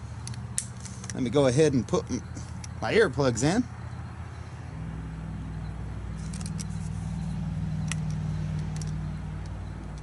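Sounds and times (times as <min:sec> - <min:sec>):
low engine-like hum: 0:00.0 - 0:10.0
small clicks: 0:07.8 - 0:10.0.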